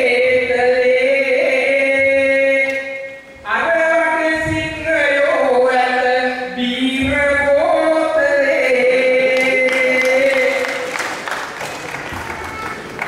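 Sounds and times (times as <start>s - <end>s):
man singing through microphone: 0.0s - 11.0s
scattered clapping: 9.3s - 13.0s.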